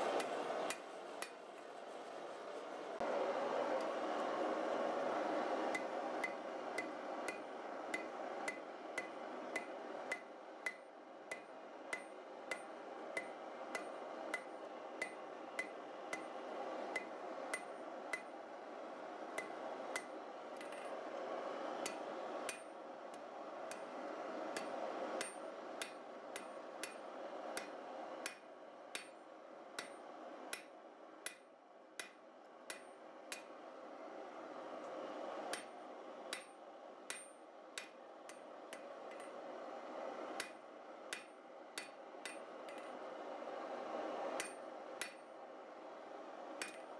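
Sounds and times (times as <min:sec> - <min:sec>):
steady rushing noise: 0:00.0 - 0:46.9
hammer striking steel on anvil: 0:05.7 - 0:18.3, 0:19.4 - 0:20.9, 0:21.8 - 0:22.7, 0:24.6 - 0:29.2, 0:29.8 - 0:33.6, 0:35.5 - 0:35.7, 0:36.3 - 0:39.4, 0:40.4 - 0:42.9, 0:44.4 - 0:45.2, 0:46.6 - 0:46.8.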